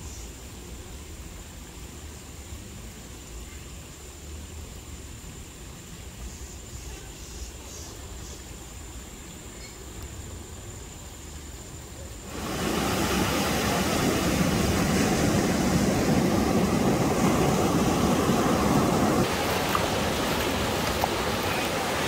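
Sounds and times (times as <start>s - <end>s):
steady rushing noise: 12.2s - 22.0s.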